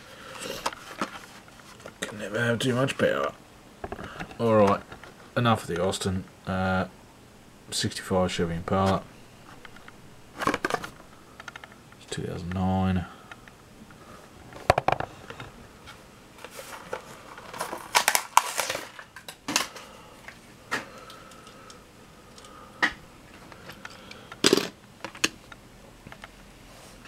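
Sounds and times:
blister packaging crinkling: 16.5s - 19.9s.

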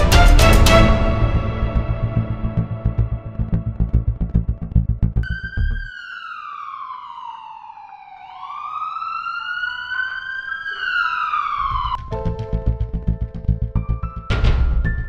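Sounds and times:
music with heavy beat: 0.0s - 5.7s
ambulance siren wailing: 5.2s - 12.2s.

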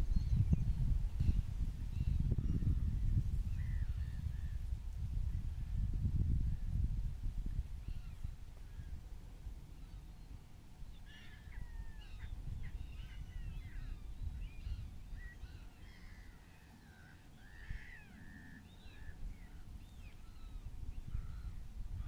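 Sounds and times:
gulls calling: 9.8s - 21.6s.

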